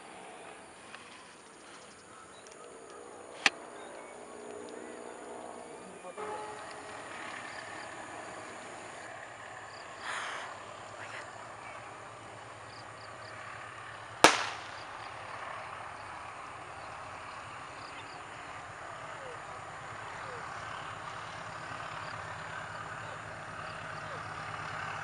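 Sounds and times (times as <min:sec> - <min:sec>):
sharp bang: 0:14.2 - 0:14.9.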